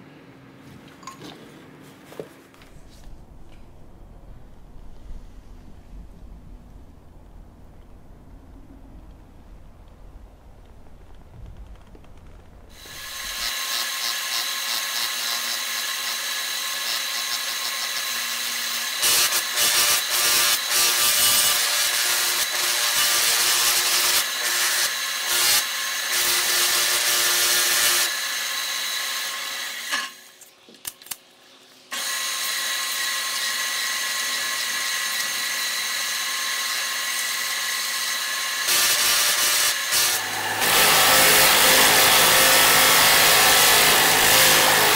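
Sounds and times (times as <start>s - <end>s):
belt grinder whining: 12.7s - 30.2s, 31.9s - 44.9s
wood sanding on grinder belt: 38.6s - 44.9s.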